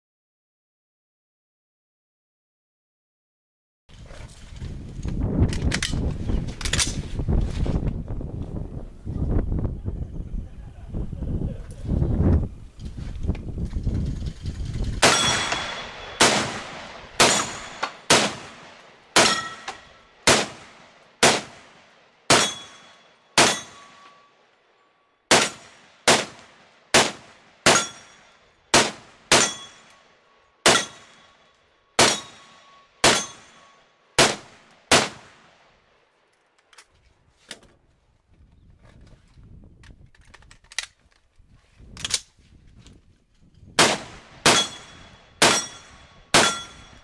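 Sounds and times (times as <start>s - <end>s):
rifle gunshots: 15.0s - 24.2s, 25.3s - 29.9s, 30.6s - 31.3s, 32.0s - 35.6s, 43.8s - 46.8s.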